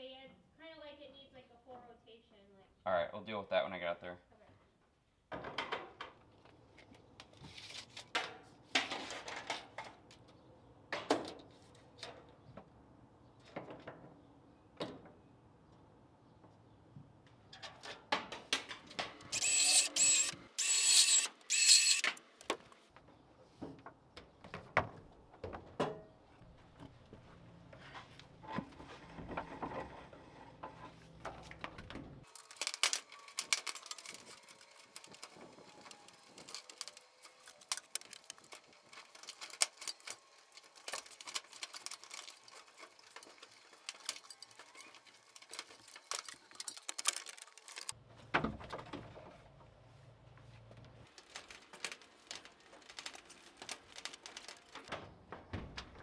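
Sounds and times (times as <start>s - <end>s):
wires scraping through metal conduit: 19.2s - 22.1s, 32.3s - 48.0s.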